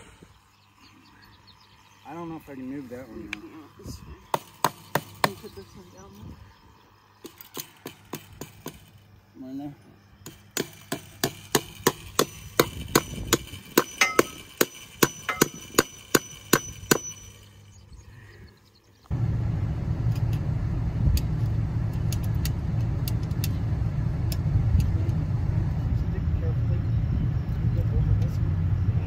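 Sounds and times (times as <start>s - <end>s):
hammer blows on metal: 10.2s - 17.5s
steady low rumble: 19.1s - 29.0s.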